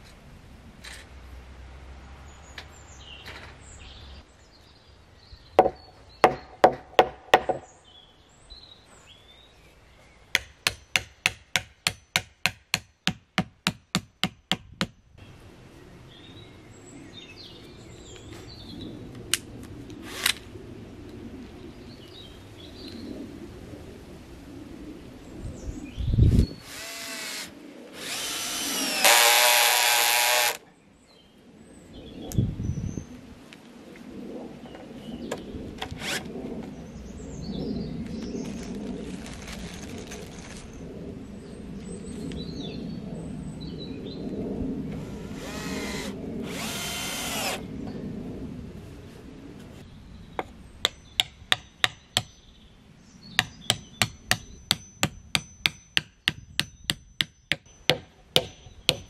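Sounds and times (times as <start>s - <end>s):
cordless drill whirring: 26.6s - 30.6s, 45.0s - 47.6s.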